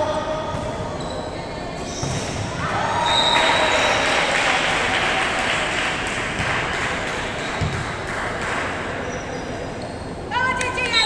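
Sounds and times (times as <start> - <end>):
sneakers squeaking on wooden court: 0.5 - 2.5, 7.4 - 7.9, 9.0 - 10.3
players' voices and cheering: 2.4 - 6.0
volleyball struck and bouncing: 7.4 - 8.6.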